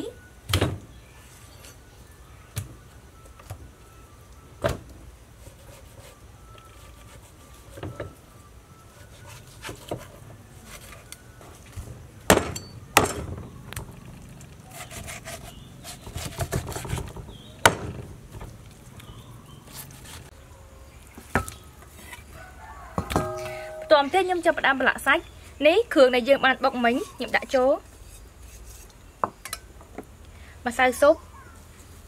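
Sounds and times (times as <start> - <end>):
cleaver sawing through meat: 14.6 - 17.0, 19.5 - 20.3.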